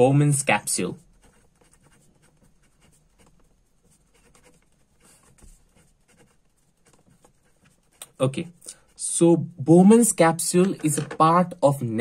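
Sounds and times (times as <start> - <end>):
pen scratching on paper: 0.6 - 9.2.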